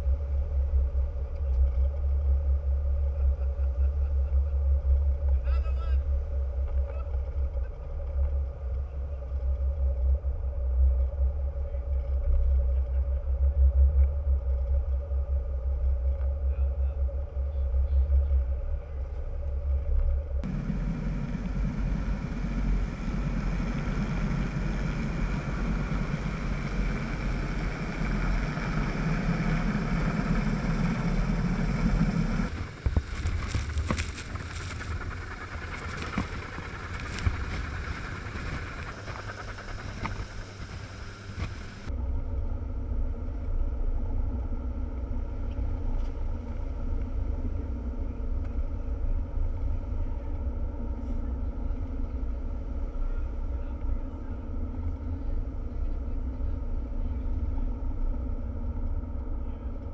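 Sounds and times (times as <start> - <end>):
boat engine rumbling: 0.0 - 41.9
wind buffeting microphone: 20.4 - 41.9.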